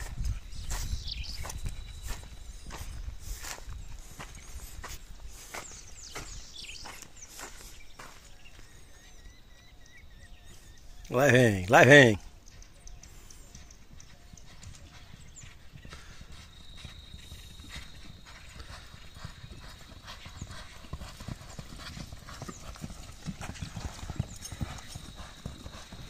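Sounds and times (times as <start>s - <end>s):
galloping hoofbeats on dirt: 0.0s - 9.5s, 11.2s - 26.0s.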